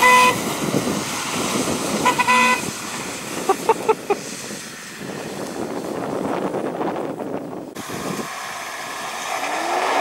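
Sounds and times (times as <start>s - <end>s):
car horn toots: 0.0s - 0.4s, 2.0s - 2.7s
off-road vehicle engines running: 0.0s - 10.0s.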